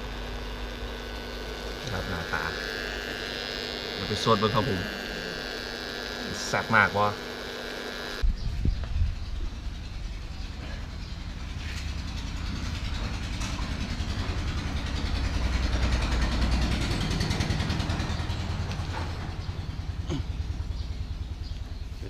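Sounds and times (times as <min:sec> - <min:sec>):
vehicle engine passing: 0:09.6 - 0:21.4.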